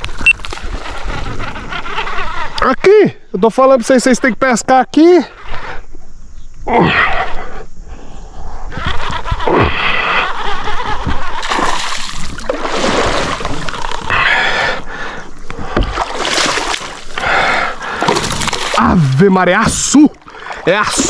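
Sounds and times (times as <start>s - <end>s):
fish thrashing and splashing water: 11.4s - 14.1s, 15.6s - 21.0s.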